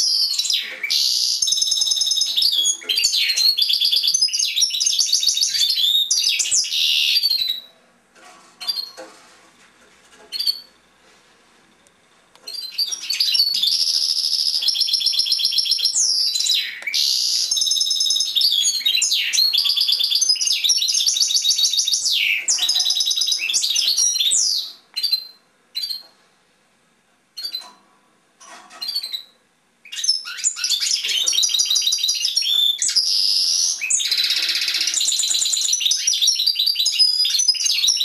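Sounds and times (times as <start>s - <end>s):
finch singing trills: 12.5s - 26.1s.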